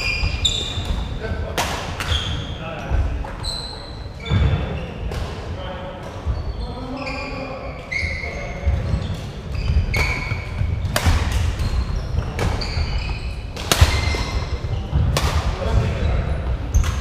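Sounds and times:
shoes squeaking on wooden floor: 0.0s - 1.2s, 2.0s - 5.1s, 6.2s - 15.2s
rackets hitting shuttlecock: 0.5s - 2.3s, 9.5s - 15.7s, 16.8s - 17.0s.

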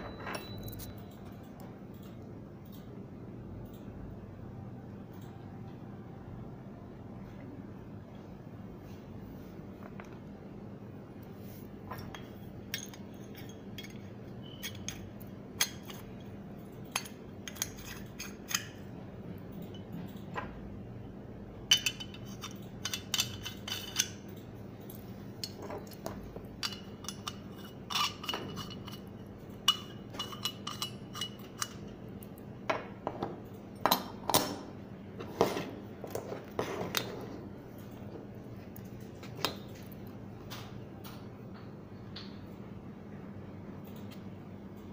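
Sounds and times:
metal parts clinking and clicking: 11.9s - 16.2s, 21.7s - 32.0s.

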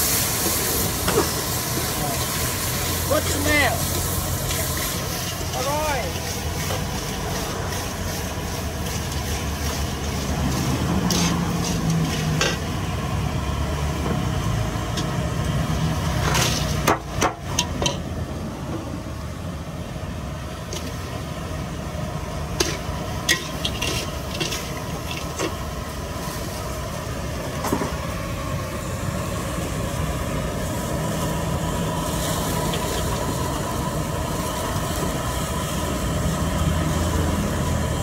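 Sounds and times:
utensils and dishes clinking: 22.6s - 25.6s.

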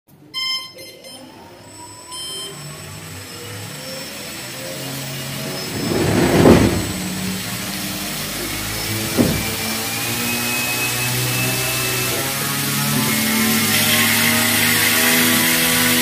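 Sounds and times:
propeller wind noise: 5.3s - 7.7s, 9.0s - 9.7s.

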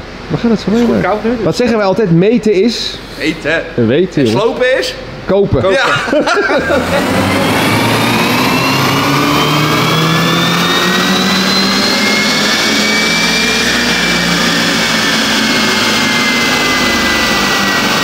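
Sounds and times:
car engine revving under full throttle: 6.5s - 18.0s.

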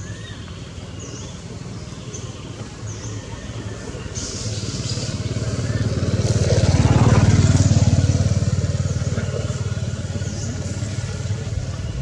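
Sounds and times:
vehicle engine passing by: 3.6s - 12.0s.

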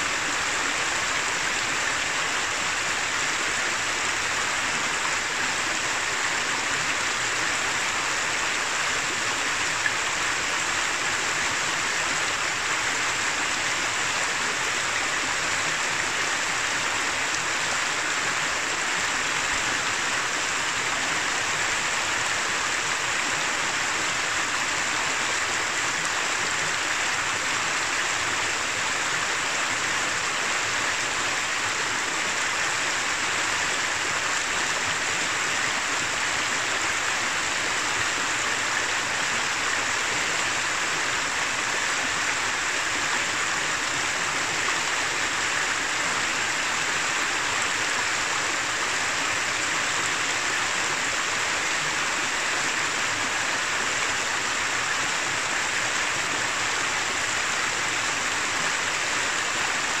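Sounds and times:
river running over rocks: 0.0s - 60.0s.

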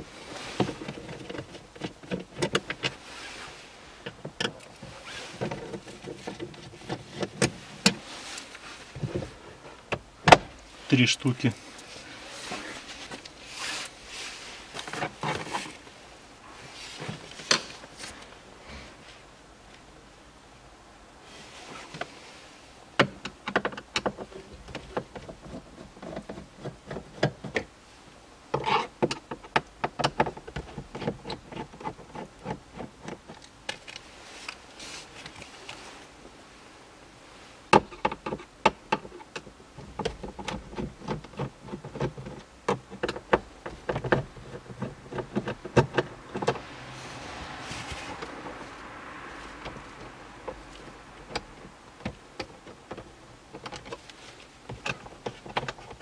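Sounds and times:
soft rustle: 0.0s - 23.0s, 31.5s - 37.8s, 39.1s - 56.0s.

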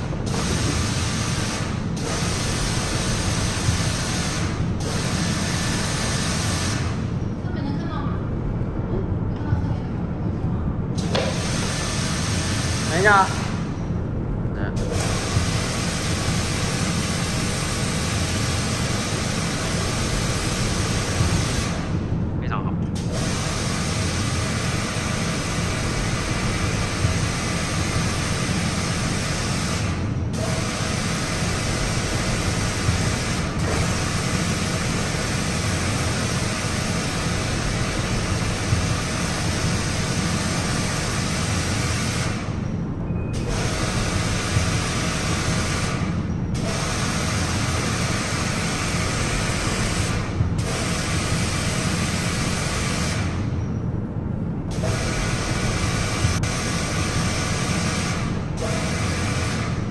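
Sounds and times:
pressure washer water jet: 0.0s - 6.9s, 11.0s - 13.4s, 14.9s - 21.8s, 23.0s - 42.4s, 54.7s - 59.7s
pump motor running: 0.0s - 7.0s, 11.0s - 13.6s, 14.8s - 22.0s, 23.0s - 42.5s, 43.4s - 53.3s, 54.7s - 59.9s.

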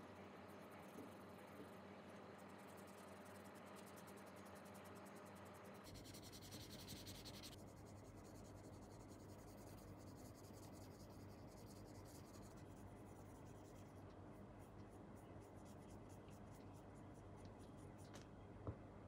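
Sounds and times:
cotton swab rubbing plastic: 5.9s - 18.0s.

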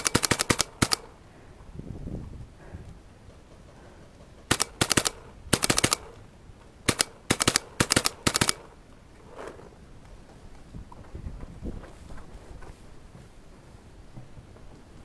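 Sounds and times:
paintball marker firing: 0.0s - 1.1s, 4.5s - 6.2s, 6.9s - 8.8s.

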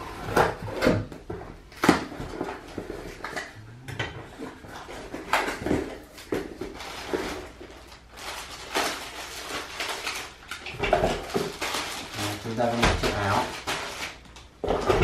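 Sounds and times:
cardboard and plastic rustling: 0.0s - 15.0s.

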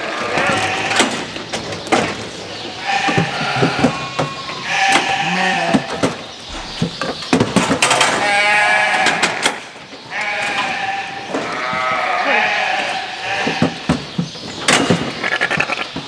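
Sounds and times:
sheep bleating: 0.0s - 1.1s, 2.8s - 6.7s, 8.1s - 9.4s, 10.1s - 13.8s
metal gates clanking: 0.0s - 13.9s.

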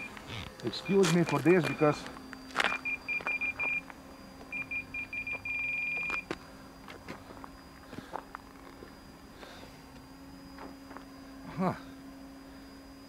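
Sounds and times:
radio transmitter beeping: 0.0s - 3.9s.

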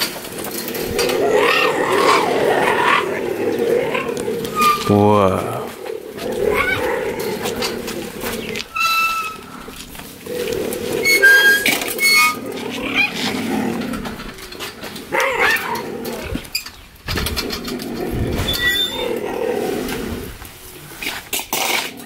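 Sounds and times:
cheetahs growling: 0.0s - 22.0s
cheetahs chirping: 0.7s - 13.3s.

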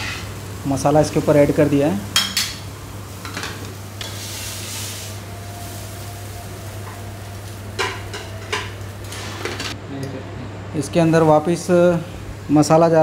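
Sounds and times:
omelette sizzling on a griddle: 2.8s - 9.7s
metal spatula scraping griddle: 7.8s - 9.8s.

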